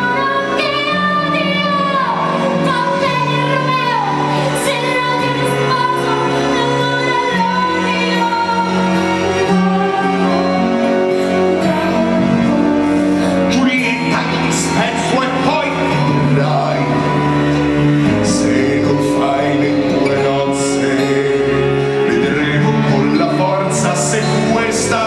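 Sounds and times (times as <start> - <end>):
woman singing: 0.0 - 14.2
orchestra holding chords: 0.0 - 25.0.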